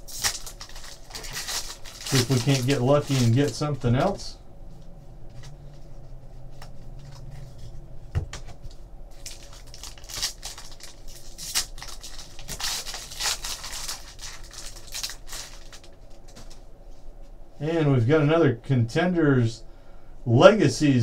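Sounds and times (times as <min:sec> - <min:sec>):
foil wrapper crinkling and tearing: 0:00.0 - 0:04.2, 0:09.1 - 0:16.3.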